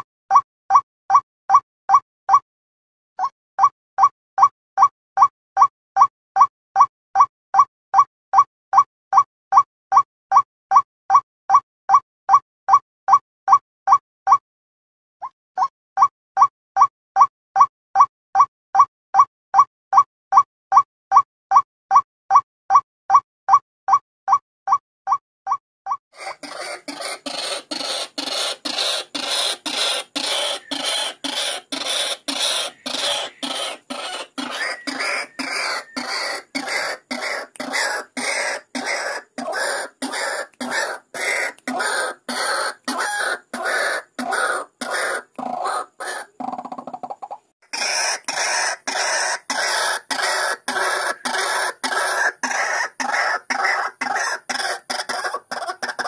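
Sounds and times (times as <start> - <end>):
waterhen harsh croaking calls: 26.2 - 56.0.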